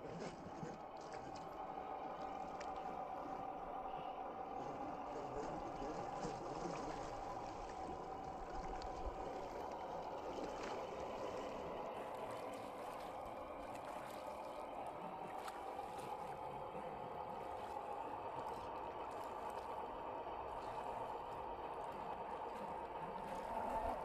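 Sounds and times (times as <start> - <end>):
tyres splashing through muddy water: 3.8 - 19.7.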